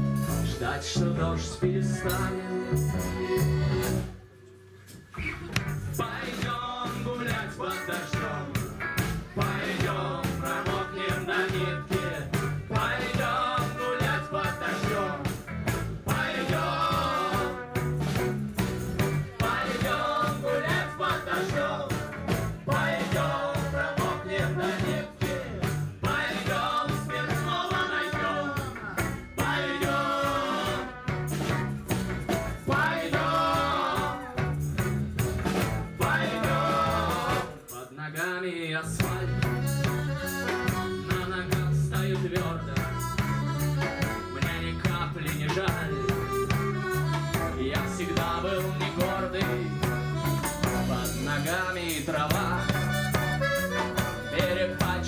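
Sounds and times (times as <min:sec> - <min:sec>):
electric guitar: 0:00.0 - 0:04.3, 0:04.9 - 0:37.7, 0:39.0 - 0:55.0
accordion: 0:00.0 - 0:06.2, 0:07.3 - 0:37.7, 0:39.0 - 0:55.0
drums: 0:00.0 - 0:37.9, 0:38.8 - 0:55.0.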